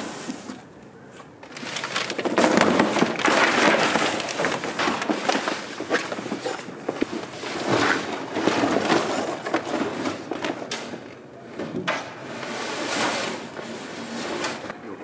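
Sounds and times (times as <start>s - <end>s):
canvas rustling and flapping: 1.4s - 14.8s.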